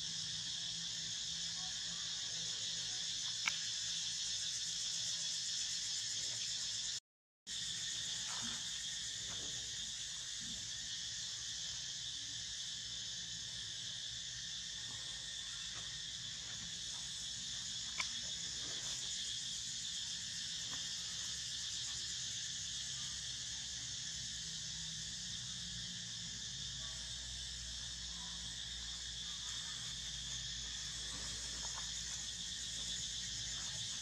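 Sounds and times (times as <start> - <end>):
insects chirring: 0.0 - 34.0.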